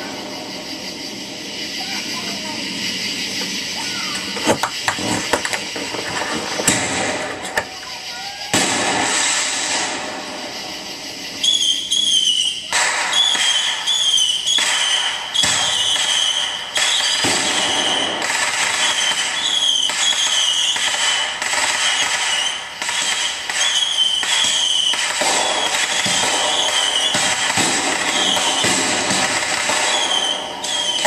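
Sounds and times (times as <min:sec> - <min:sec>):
fireworks bangs: 0:00.0 - 0:31.0
high wavering whistle: 0:10.6 - 0:18.2.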